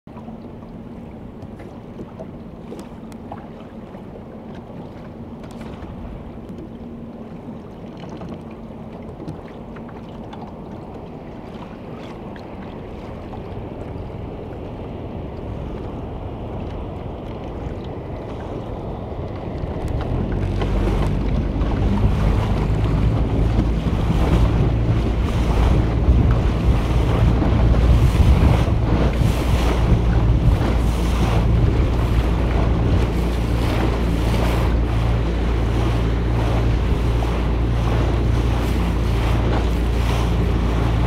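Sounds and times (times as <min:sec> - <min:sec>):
boat engine rumble: 0:00.1 - 0:41.0
water splashing along hull: 0:00.1 - 0:41.0
wind on microphone: 0:11.4 - 0:41.0.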